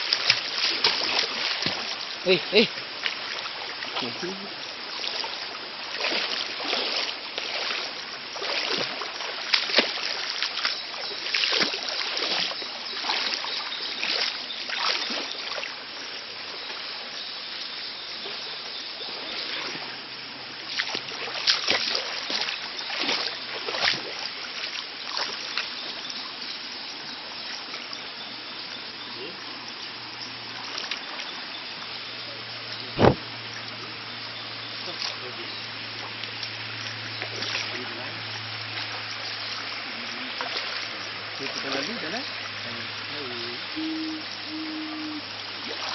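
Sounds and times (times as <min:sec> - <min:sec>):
wading splashes in water: 0:00.0 - 0:17.0, 0:18.2 - 0:45.9
stream rushing: 0:00.0 - 0:45.9.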